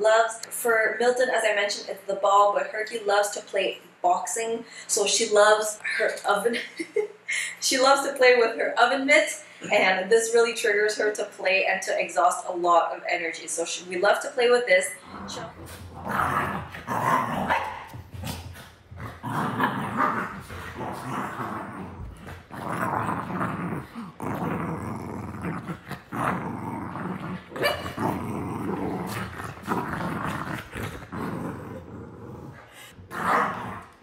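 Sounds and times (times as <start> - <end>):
dog growling in play: 15.0 - 34.0.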